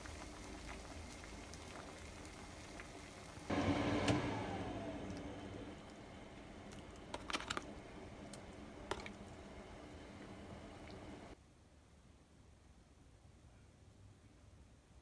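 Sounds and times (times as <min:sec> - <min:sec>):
stew simmering: 0:00.0 - 0:11.4.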